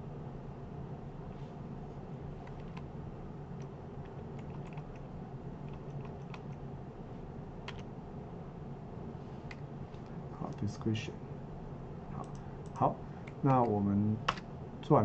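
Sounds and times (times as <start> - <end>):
steady low hum: 0.0 - 15.0
keyboard keystrokes: 2.4 - 2.9, 3.6 - 5.1, 5.7 - 6.6.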